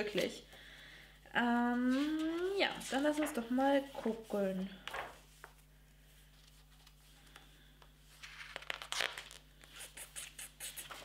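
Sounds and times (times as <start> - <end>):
paper pages rustling: 1.9 - 7.5, 8.1 - 11.0.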